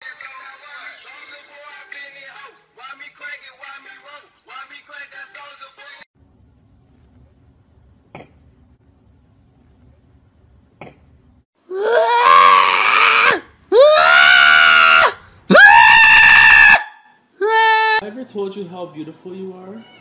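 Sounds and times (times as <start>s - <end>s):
cat yowling: 11.7s - 18.0s.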